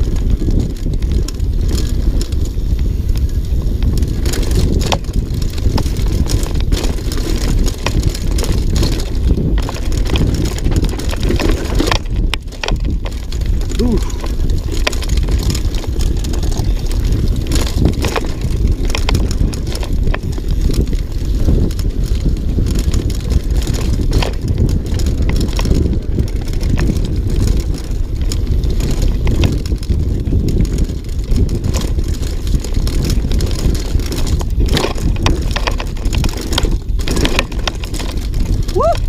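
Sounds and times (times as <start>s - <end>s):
bike rattling over bumps: 0.0s - 39.0s
bike tyres rumbling on dirt: 0.0s - 39.0s
wind buffeting microphone: 0.0s - 39.0s.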